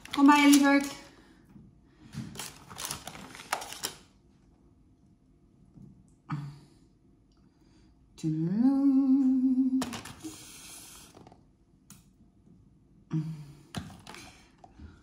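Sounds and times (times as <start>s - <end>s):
plastic tray crinkling: 0.0s - 1.0s, 2.3s - 4.1s
woman humming: 8.2s - 9.8s.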